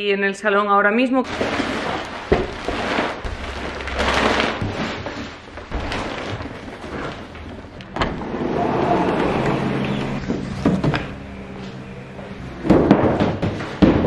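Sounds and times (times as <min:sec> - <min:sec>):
plastic film rustling and crinkling: 0:01.2 - 0:08.0
cardboard sheets scraping: 0:01.3 - 0:11.0.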